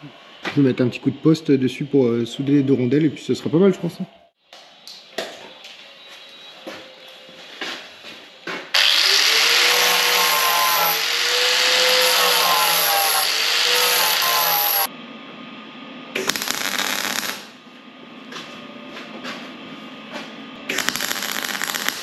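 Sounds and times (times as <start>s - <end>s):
electric power tool whining on metal: 8.8s - 14.9s.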